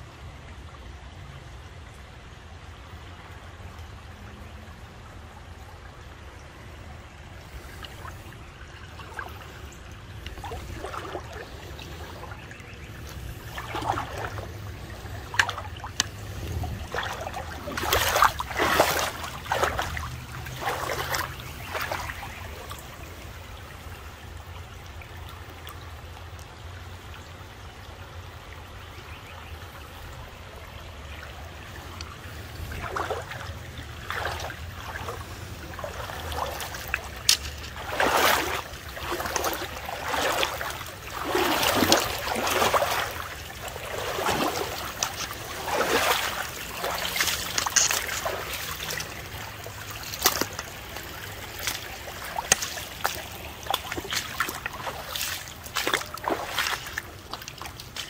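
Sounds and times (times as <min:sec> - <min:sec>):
creek water trickling: 0:00.0 - 0:58.0
water splashing and sloshing: 0:00.0 - 0:58.0.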